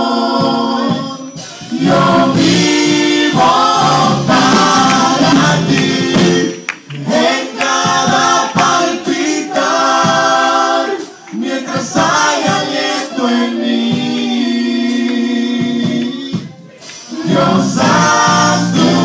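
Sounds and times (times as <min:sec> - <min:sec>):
group singing worship song: 0:00.0 - 0:19.0.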